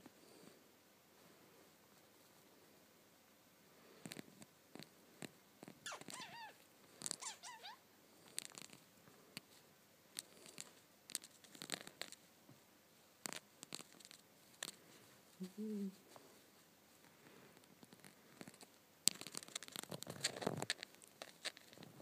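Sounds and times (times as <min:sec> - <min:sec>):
budgie chirping: 0:05.8 - 0:07.8.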